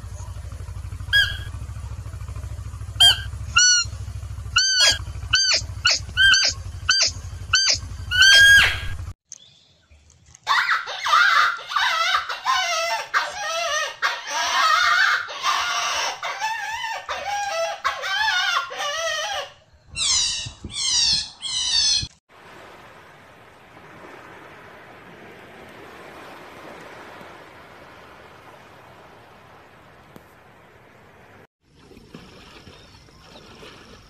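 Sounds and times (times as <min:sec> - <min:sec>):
steady low hum: 0:00.0 - 0:09.2
squeaky high-pitched animal calls: 0:01.1 - 0:01.6, 0:03.0 - 0:03.9, 0:04.6 - 0:09.0, 0:10.5 - 0:22.1
chattering squeaks and chirps: 0:04.6 - 0:08.9, 0:19.9 - 0:22.1.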